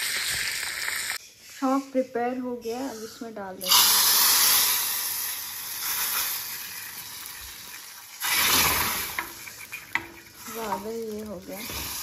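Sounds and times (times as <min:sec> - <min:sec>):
hot oil sizzling: 0:00.0 - 0:01.2, 0:03.6 - 0:12.0.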